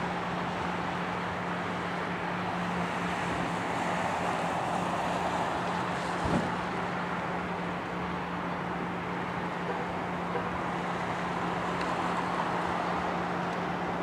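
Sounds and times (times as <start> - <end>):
cars passing: 0.0 - 14.0
short thump: 6.2 - 6.6.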